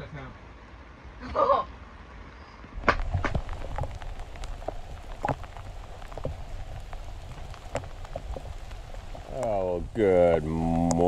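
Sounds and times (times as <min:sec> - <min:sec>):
steady rain falling: 0:00.0 - 0:11.0
drops ticking close by: 0:02.8 - 0:11.0.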